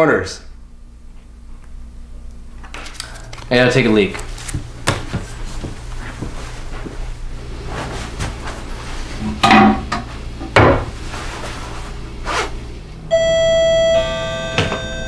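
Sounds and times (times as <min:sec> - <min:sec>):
two-note doorbell chime: 0:13.1 - 0:15.0.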